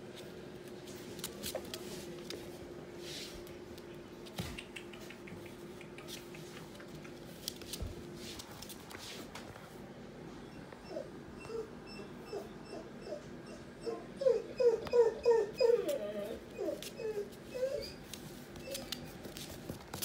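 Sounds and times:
puppy claws clicking on floor: 0.6 - 2.5, 3.7 - 9.5, 17.8 - 20.0.

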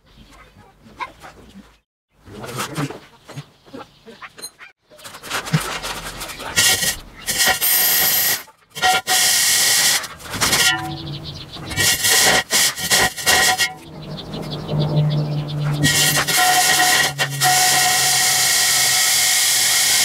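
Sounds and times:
electric drill grinding through brick: 6.6 - 10.6, 15.8 - 20.0.

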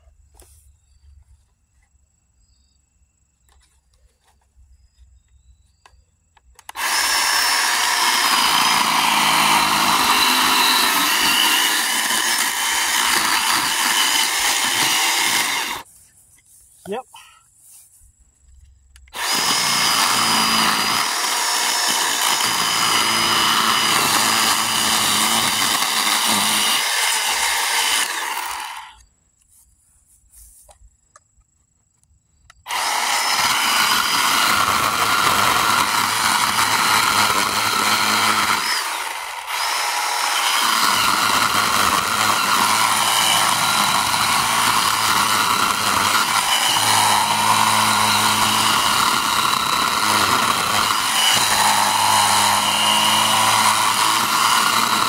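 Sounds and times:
chain rasping through wood: 6.6 - 15.9, 19.1 - 29.0, 32.7 - 55.0
chainsaw motor whine: 6.6 - 15.9, 19.1 - 29.0, 32.7 - 55.0.

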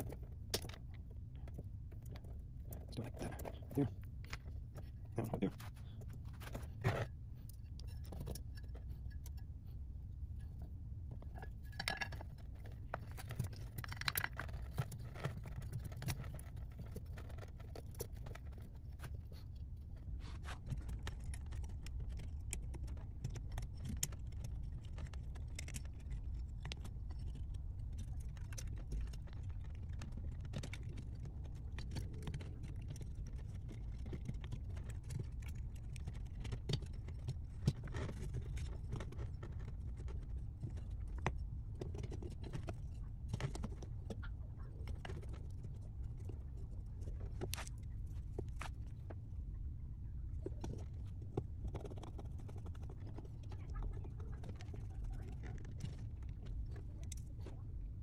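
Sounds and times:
low hum: 0.0 - 58.0.

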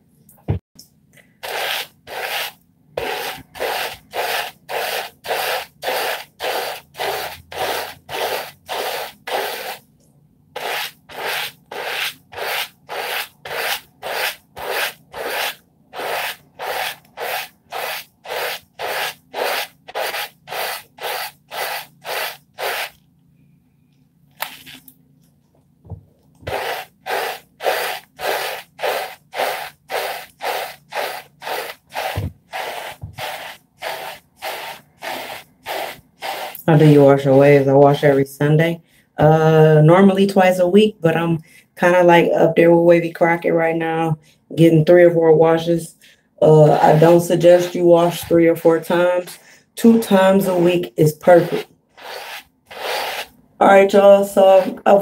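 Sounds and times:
brush swishing through lathered hair: 1.4 - 9.8, 10.6 - 23.0, 26.4 - 38.3, 46.7 - 53.3, 54.4 - 55.0.

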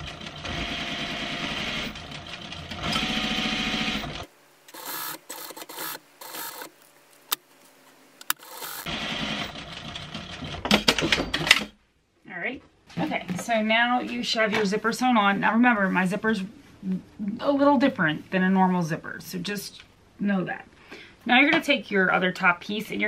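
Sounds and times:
sewing machine stitching: 0.0 - 6.7, 8.3 - 11.2.

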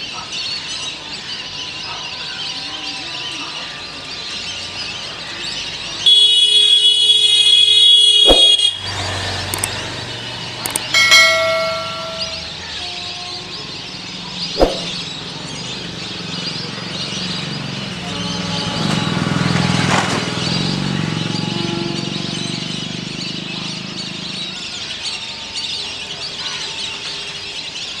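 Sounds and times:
sharp click: 9.5 - 9.8, 10.6 - 12.4, 14.6 - 15.0.

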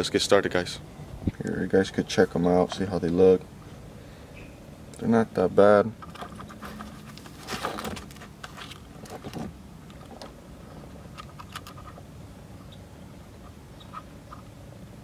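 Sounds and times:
packaging rustling: 6.3 - 9.5.

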